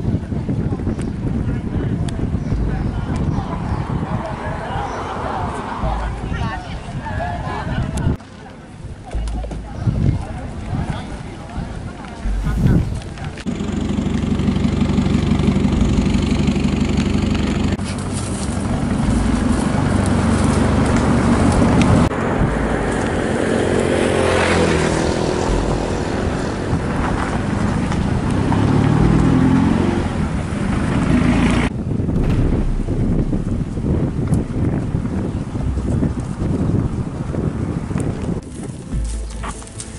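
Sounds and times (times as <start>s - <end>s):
vehicle engines revving: 12.2s - 37.4s.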